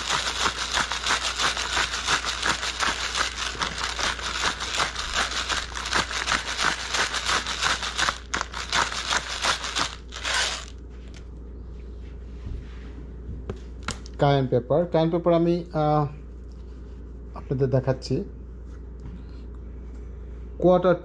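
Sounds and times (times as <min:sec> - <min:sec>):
pepper mill grinding: 0:00.0 - 0:10.8.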